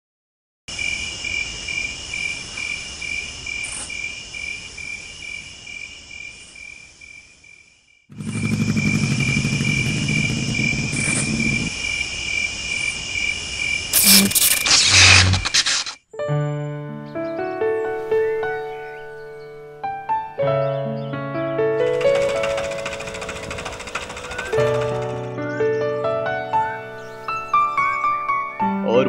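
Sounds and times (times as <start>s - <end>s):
crickets chirping: 0.7s - 16.0s, 21.8s - 25.8s
loud rushing noise: 14.0s - 16.0s.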